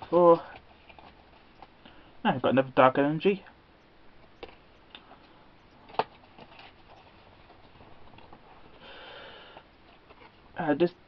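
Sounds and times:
soft card rustle: 0.0 - 2.0, 4.2 - 8.8, 9.5 - 10.7.

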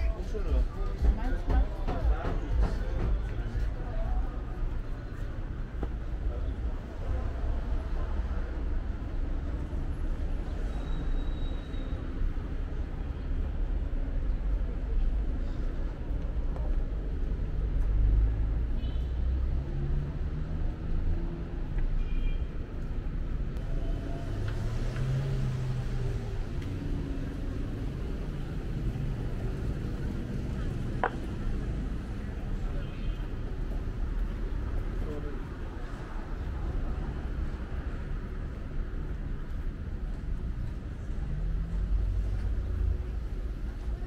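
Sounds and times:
cars passing low rumble: 12.0 - 21.9, 22.6 - 44.0.

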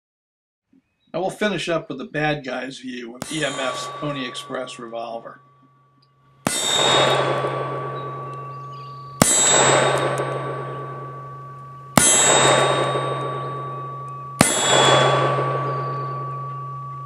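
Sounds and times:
ringing echo of gunshots: 3.2 - 5.0, 6.4 - 16.5
revolver shots: 6.4 - 16.6.

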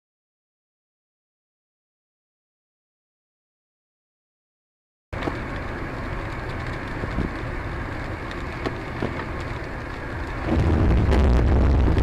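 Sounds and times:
light ticks: 5.2 - 10.4
car driving on wet road: 5.2 - 12.0.

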